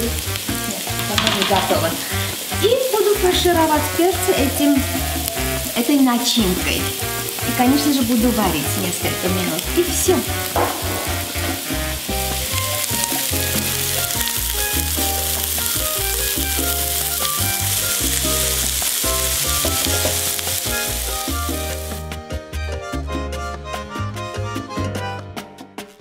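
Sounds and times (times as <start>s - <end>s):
background music with bass: 0.0s - 5.8s, 6.4s - 26.0s
onion sizzling in oil: 0.0s - 22.1s
spatula stirring in skillet: 8.7s - 22.0s.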